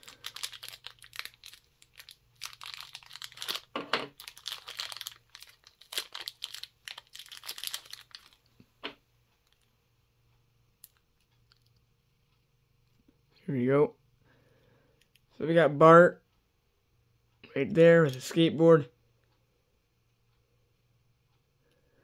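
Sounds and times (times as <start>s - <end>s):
plastic bag crinkling and tearing: 0.0s - 8.5s.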